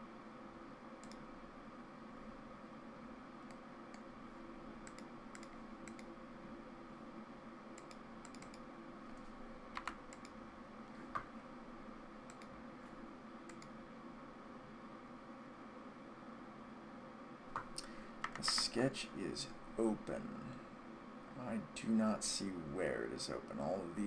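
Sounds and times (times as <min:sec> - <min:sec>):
faint steady hum: 0:00.0 - 0:24.0
mouse and keyboard clicks: 0:07.8 - 0:08.6, 0:17.5 - 0:18.7.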